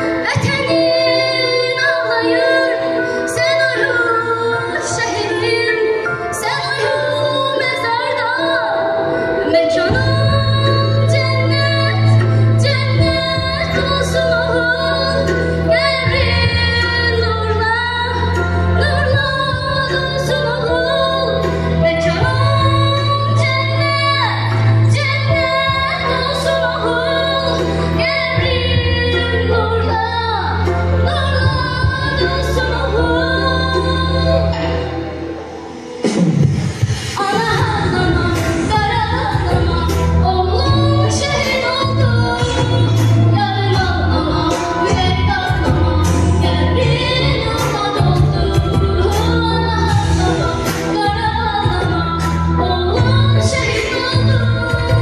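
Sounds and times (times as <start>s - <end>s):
girl singing into microphone: 0.0s - 35.4s, 36.5s - 55.0s
backing music with bass: 9.5s - 55.0s.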